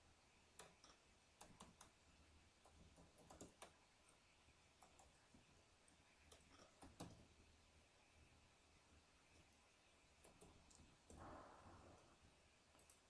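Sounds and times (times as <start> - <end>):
keyboard typing: 2.6 - 3.8.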